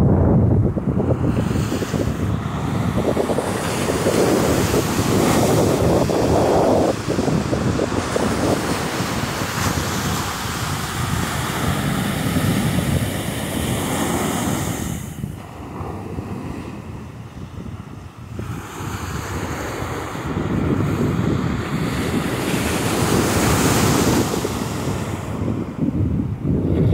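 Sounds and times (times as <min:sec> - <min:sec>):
wind buffeting microphone: 0:00.0 - 0:26.9
small waves breaking on sand: 0:01.1 - 0:25.8.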